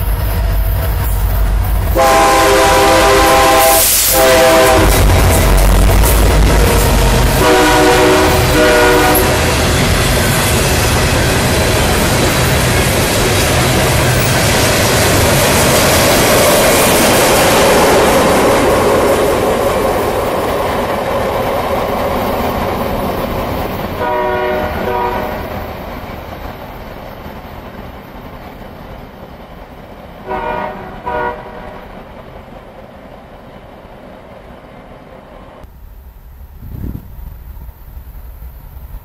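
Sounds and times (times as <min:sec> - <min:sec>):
freight train rumbling past: 0:00.0 - 0:39.0
train horn blasts: 0:01.9 - 0:05.7, 0:06.5 - 0:09.7, 0:24.0 - 0:25.5, 0:30.2 - 0:31.9.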